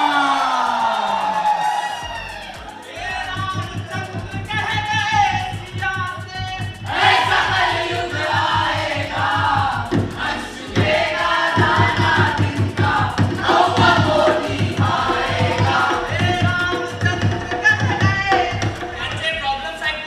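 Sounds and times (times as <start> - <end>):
song over pa speakers: 0.0 - 20.0
steady low beat: 0.0 - 20.0
group singing: 6.8 - 19.1.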